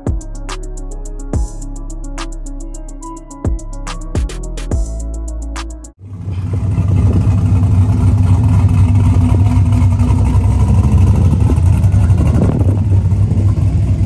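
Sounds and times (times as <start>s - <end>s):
car engine humming: 6.0s - 14.0s.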